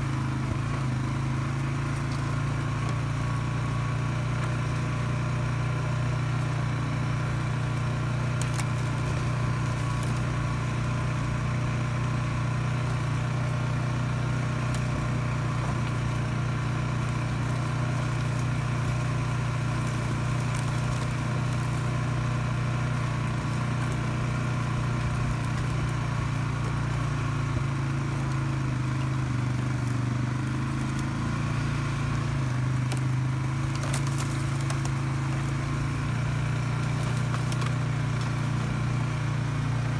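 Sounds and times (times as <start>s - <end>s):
atv engine running: 0.0s - 39.9s.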